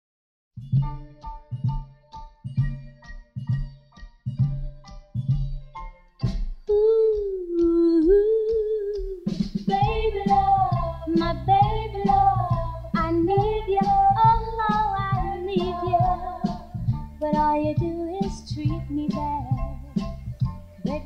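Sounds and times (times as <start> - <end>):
person singing: 6.7 - 19.8
steady beat with bass: 9.0 - 21.0.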